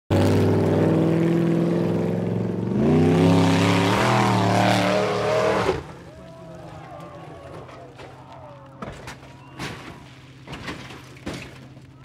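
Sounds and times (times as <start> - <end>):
buggy engine running at high revs: 0.1 - 6.1.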